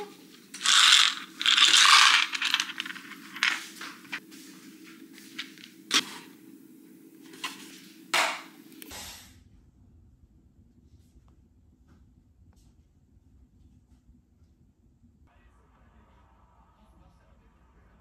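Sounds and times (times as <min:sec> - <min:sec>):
containers knocking and scraping: 0:00.0 - 0:04.2.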